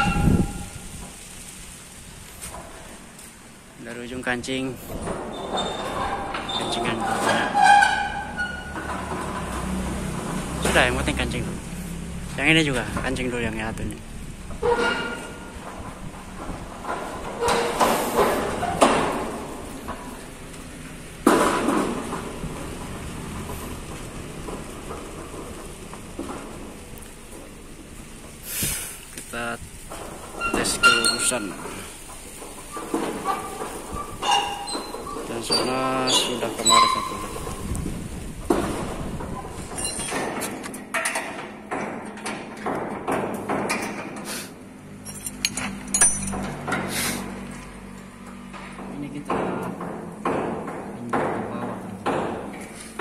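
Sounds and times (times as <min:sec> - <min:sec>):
metal bar knocking and scraping: 0:00.0 - 0:00.8, 0:04.8 - 0:11.3, 0:14.5 - 0:20.3, 0:29.9 - 0:37.8, 0:38.4 - 0:53.0
metal door leaves rattling: 0:00.0 - 0:53.0
sharp metal clang: 0:45.0 - 0:46.8.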